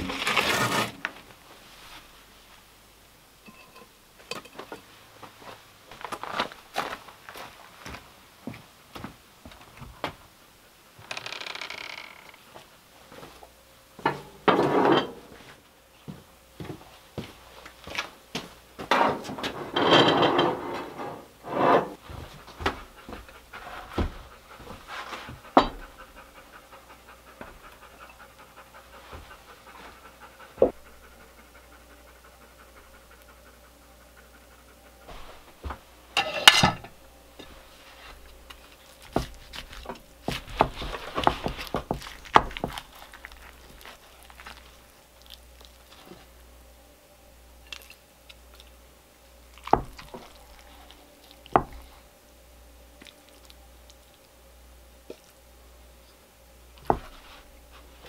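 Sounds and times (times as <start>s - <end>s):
dog panting: 22.0s - 35.7s.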